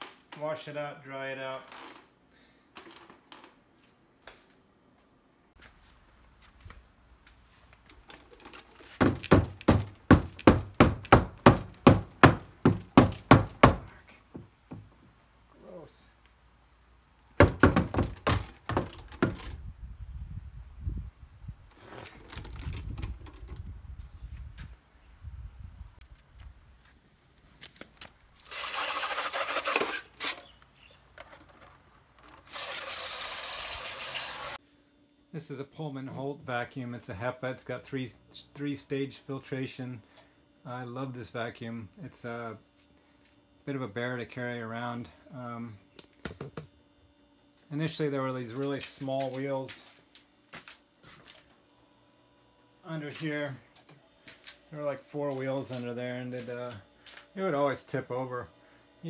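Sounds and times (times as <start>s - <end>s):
water hissing through plastic cup: 28.4s - 30.2s, 32.4s - 34.6s
hose nozzle spraying water: 28.4s - 30.5s, 32.4s - 34.6s.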